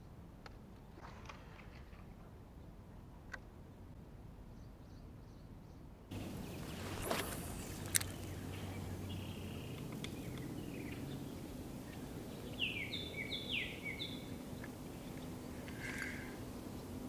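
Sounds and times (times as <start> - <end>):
bird chirping: 4.6 - 16.1
fishing rod swishing: 6.2 - 8.4.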